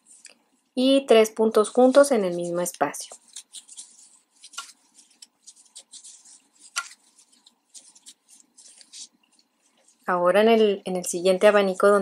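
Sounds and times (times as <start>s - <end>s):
yarn rustling: 1.6s - 10.2s.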